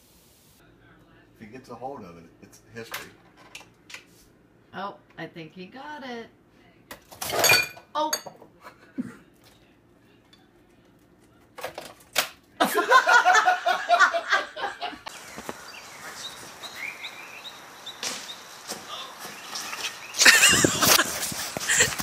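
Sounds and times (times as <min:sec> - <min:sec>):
steady hiss: 0:00.0 - 0:00.6, 0:15.1 - 0:21.9
person laughing hard: 0:20.2 - 0:22.0.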